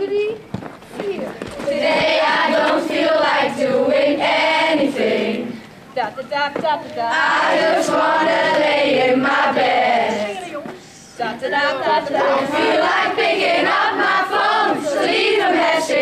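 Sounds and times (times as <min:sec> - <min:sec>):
children singing in chorus: 0:01.6 - 0:05.6, 0:07.2 - 0:10.4, 0:11.8 - 0:16.0.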